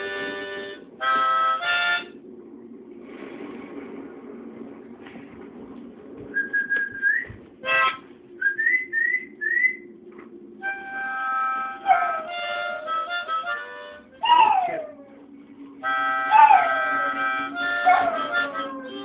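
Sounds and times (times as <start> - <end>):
blues harmonica: 0.0 - 2.2, 7.6 - 8.0, 10.6 - 14.2, 15.8 - 19.0.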